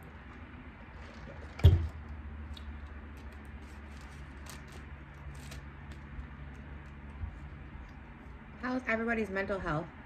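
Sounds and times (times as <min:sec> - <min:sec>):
food packaging rustling: 0:02.4 - 0:08.2.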